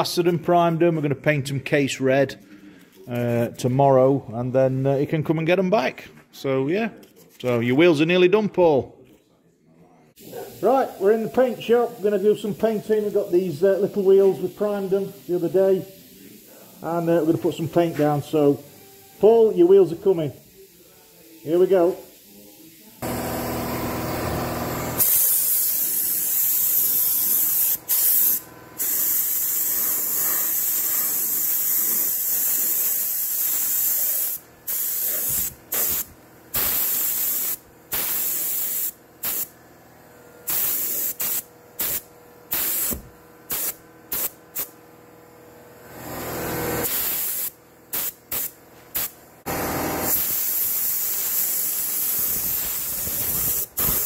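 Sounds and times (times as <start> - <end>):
spray gun hissing: 10.2 - 39.5, 40.4 - 44.7, 46.8 - 54.0.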